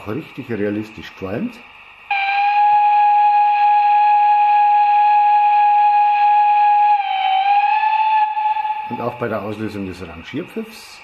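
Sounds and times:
steam whistle through loudspeaker: 0:02.1 - 0:09.8.

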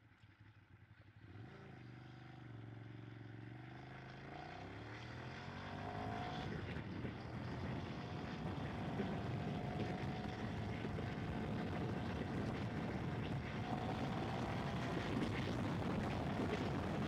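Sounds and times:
wind noise: 0:10.7 - 0:17.0.

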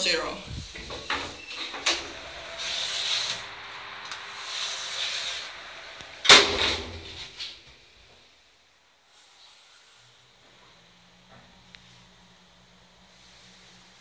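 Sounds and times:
sliding doors hissing: 0:00.5 - 0:08.5, 0:13.1 - 0:14.0
doors banging shut: 0:06.2 - 0:07.4.

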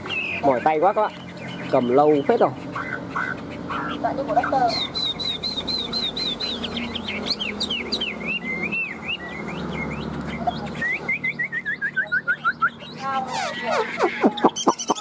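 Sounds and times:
bird singing whistled notes: 0:04.4 - 0:15.0.

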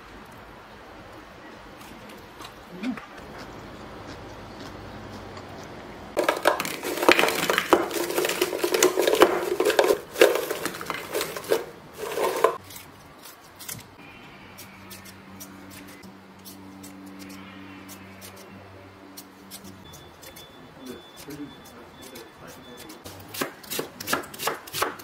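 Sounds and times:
plastic container clattering: 0:06.2 - 0:12.6.

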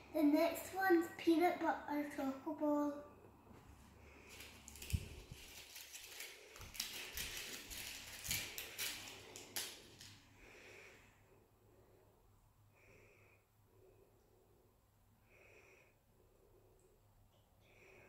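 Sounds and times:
paper crinkling and rustling: 0:04.3 - 0:10.2.

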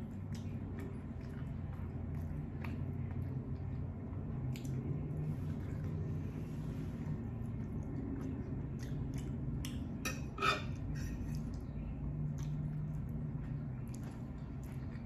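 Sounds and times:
fork scraping a plate: 0:10.1 - 0:11.5.

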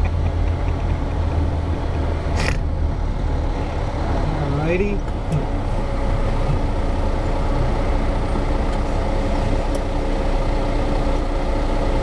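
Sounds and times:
truck engine and road noise: 0:00.0 - 0:12.0.

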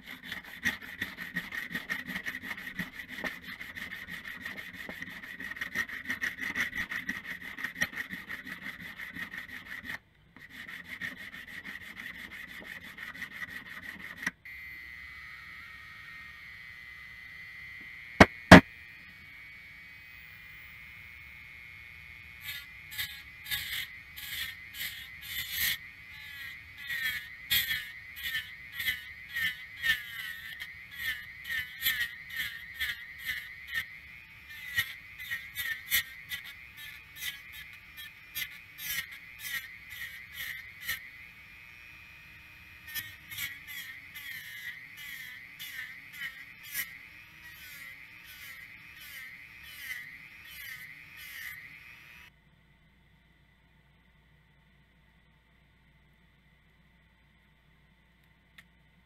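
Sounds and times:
rotary tool whining: 0:00.0 - 0:52.3
grinding wheel scraping steel: 0:22.4 - 0:42.0, 0:42.6 - 0:52.3.

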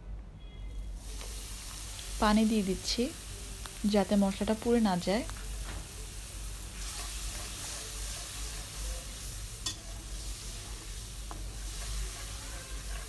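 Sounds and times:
spice paste sizzling in a pan: 0:00.8 - 0:13.0
metal spatula scraping a pan: 0:11.4 - 0:13.0.

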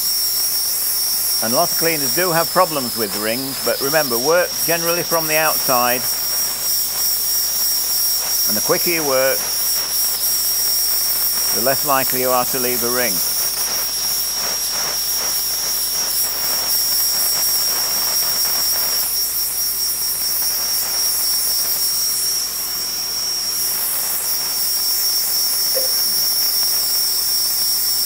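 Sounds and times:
spotting gun air jet hissing: 0:00.0 - 0:28.0.

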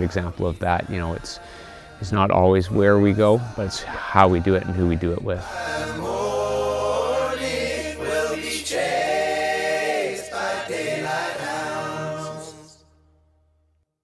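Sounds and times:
low steady drone: 0:00.0 - 0:10.4
voices singing: 0:00.0 - 0:13.0.

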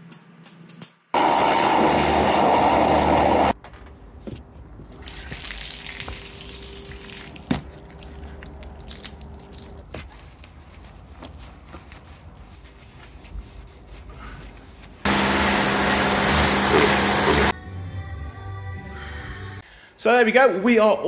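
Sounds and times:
water jet spraying into bucket: 0:01.2 - 0:03.6, 0:15.1 - 0:17.5
wash mitt rubbing on car: 0:10.1 - 0:15.1.

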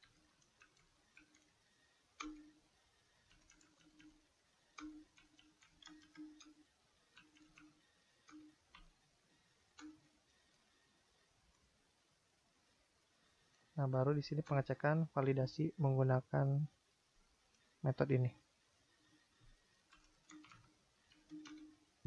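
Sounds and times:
keyboard keys clicking: 0:03.3 - 0:04.2, 0:04.8 - 0:06.6, 0:19.9 - 0:21.8.

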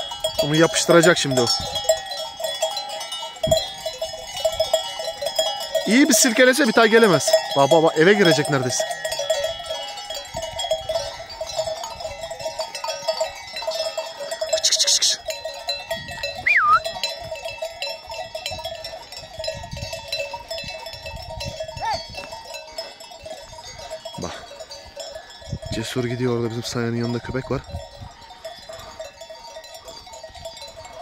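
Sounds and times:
sheep bells clanking and jingling: 0:00.0 - 0:31.0
short high call: 0:16.5 - 0:16.8.

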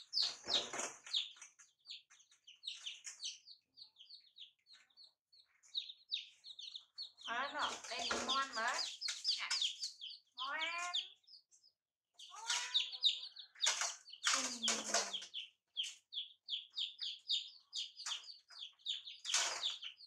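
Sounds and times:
chicks peeping: 0:00.0 - 0:20.0
harsh calls: 0:07.2 - 0:11.2.

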